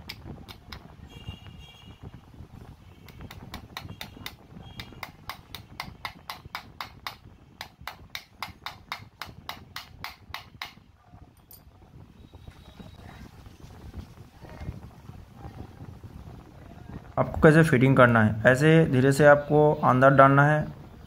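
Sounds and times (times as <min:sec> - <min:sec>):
hammer tapping on metal: 0:03.1 - 0:10.8.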